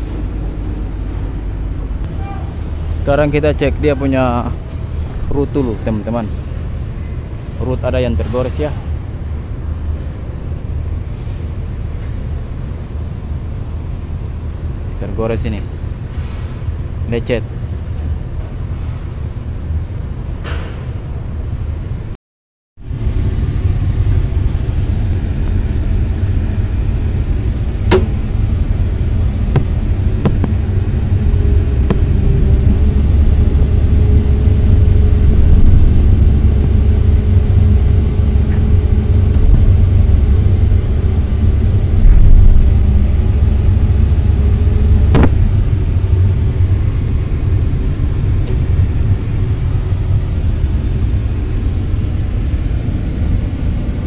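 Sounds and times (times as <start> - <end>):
steady tone: 22.9 - 52.6
excavator diesel engine running: 23.0 - 54.0.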